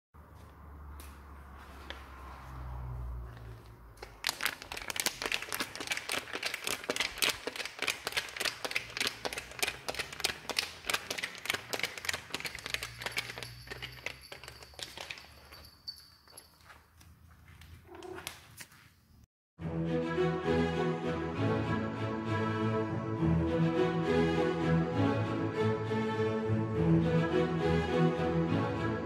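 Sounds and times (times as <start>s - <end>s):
plastic bag crinkling: 4.0s - 15.7s.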